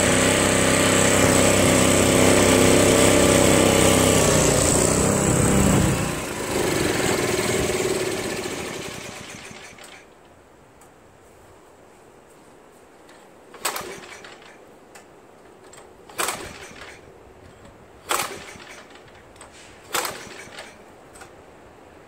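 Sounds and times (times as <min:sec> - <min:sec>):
recoil starter pulls on engine: 0:00.0 - 0:10.1, 0:13.5 - 0:14.6, 0:15.6 - 0:17.1, 0:18.0 - 0:21.3.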